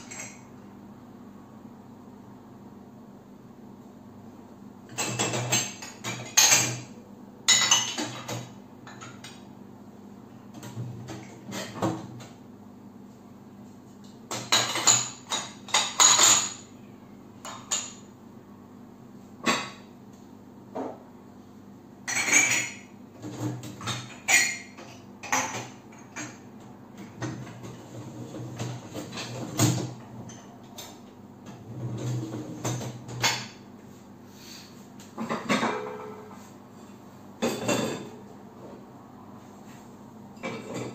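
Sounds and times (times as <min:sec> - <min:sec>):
mugs and glasses clinking: 0:07.5 - 0:09.2, 0:14.3 - 0:16.6, 0:22.1 - 0:22.9, 0:35.2 - 0:36.4, 0:37.4 - 0:38.2
faint hum: 0:15.7 - 0:23.6, 0:25.8 - 0:40.9.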